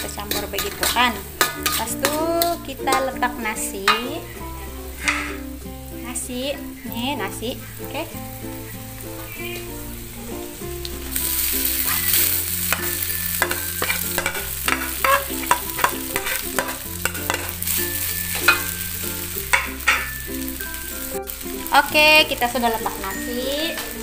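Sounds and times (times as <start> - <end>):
metal spatula scraping wok: 0.0 - 5.5, 11.2 - 20.9
background music with bass: 0.0 - 24.0
rice sizzling in wok: 0.0 - 24.0.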